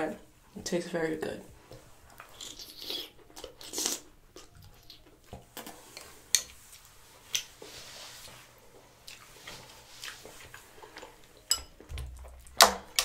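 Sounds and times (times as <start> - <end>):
person chewing seafood: 2.0 - 7.7, 8.3 - 13.0.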